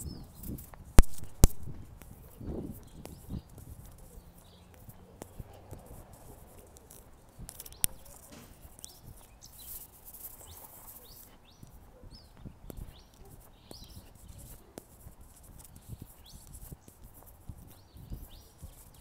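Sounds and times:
birds chirping: 0.0s - 19.0s
footsteps on street: 0.0s - 19.0s
sharp click: 0.5s - 2.1s, 4.7s - 9.2s.

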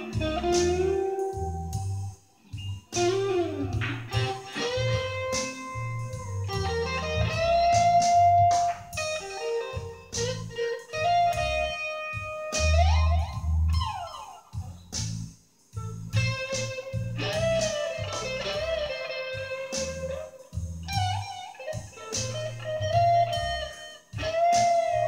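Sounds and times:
blues guitar lead lines: 0.0s - 25.0s
low bass notes: 0.0s - 25.0s.

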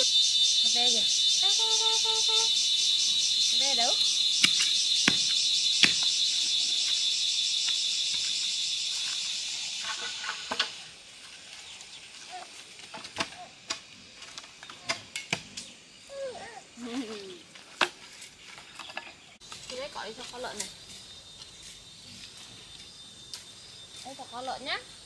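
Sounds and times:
insect chorus droning: 0.0s - 25.0s.

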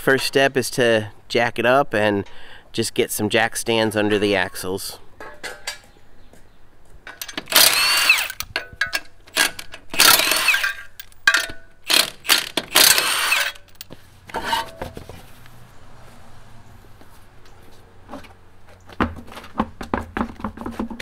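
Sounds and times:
impact wrench bursts: 7.1s - 13.9s.

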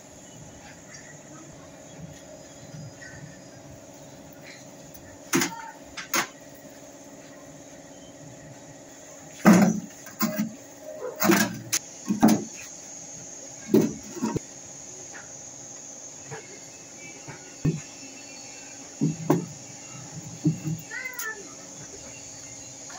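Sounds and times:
concrete blocks clunking and scraping: 9.4s - 12.6s.

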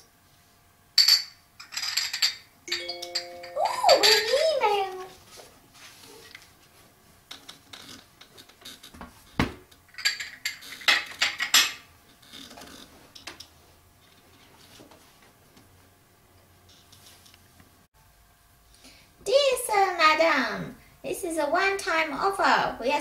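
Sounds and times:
teacup and saucer clinking: 2.2s - 4.5s.

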